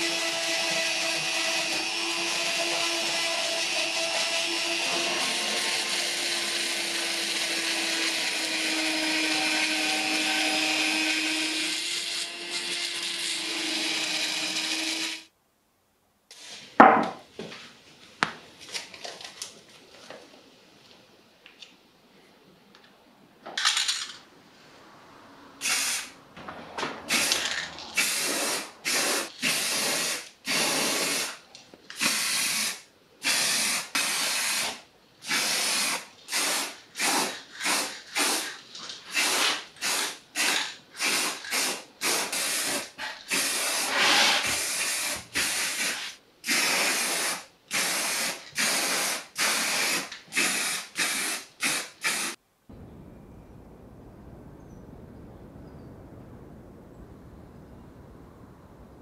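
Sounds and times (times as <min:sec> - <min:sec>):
spray paint can hissing: 0:32.0 - 0:52.4.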